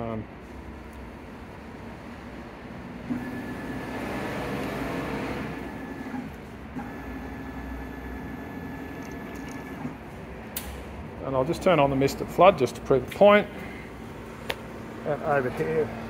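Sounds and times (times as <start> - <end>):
stepper motor whining: 3.1 - 10.0.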